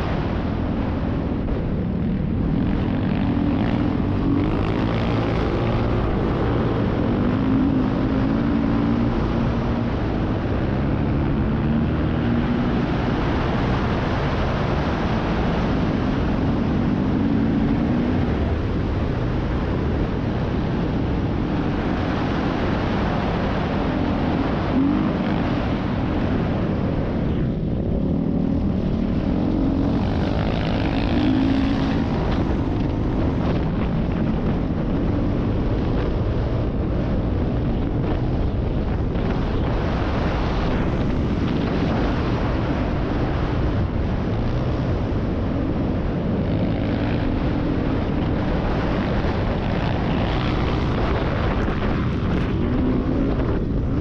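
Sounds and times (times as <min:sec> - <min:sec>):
wind and tyre noise: 0:00.0 - 0:54.0
dirt bike engine revving: 0:28.2 - 0:33.4.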